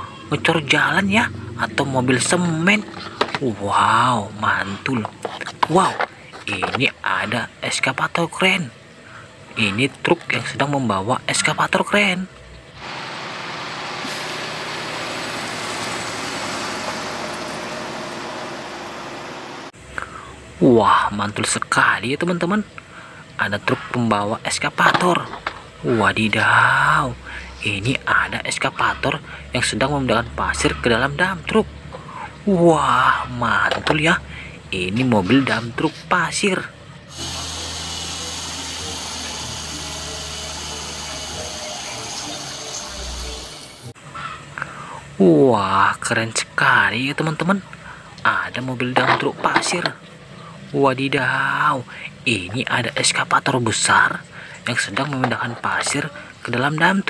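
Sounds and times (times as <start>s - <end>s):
road and tyre noise: 0.0s - 3.6s, 12.6s - 20.0s
hydraulic hiss: 12.8s - 19.6s, 37.1s - 43.9s
diesel truck engine under load: 12.8s - 19.8s.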